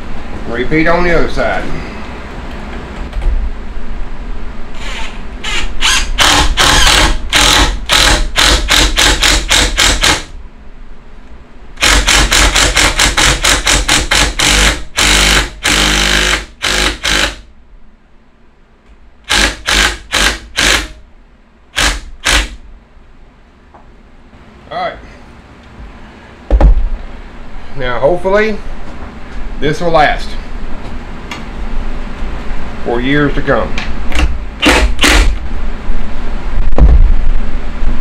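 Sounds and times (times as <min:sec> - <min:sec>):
cordless drill driving screw: 0:04.8 - 0:10.3, 0:11.8 - 0:17.4, 0:19.3 - 0:20.9, 0:21.8 - 0:22.6, 0:34.2 - 0:35.4.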